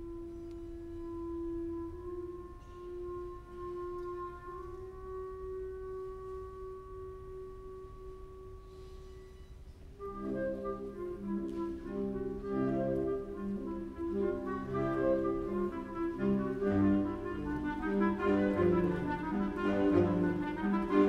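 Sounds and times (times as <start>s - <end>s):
brass and woodwind chords: 0.0s - 21.0s
orchestra playing: 0.0s - 21.0s.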